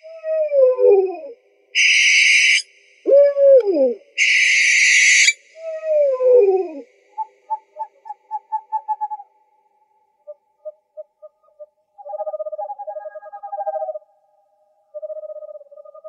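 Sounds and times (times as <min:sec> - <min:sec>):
owl hissing screech: 0:01.8 - 0:02.7, 0:04.2 - 0:05.4
owl falling call: 0:01.8 - 0:05.8
owl short toots: 0:04.2 - 0:05.4.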